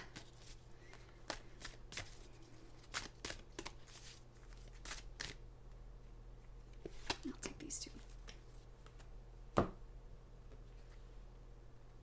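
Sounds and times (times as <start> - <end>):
cards being shuffled: 0.0 - 5.4, 6.8 - 9.1.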